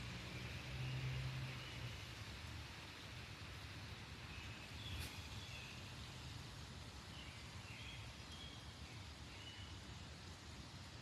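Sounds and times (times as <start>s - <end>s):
low rumble and hiss: 0.0s - 11.0s.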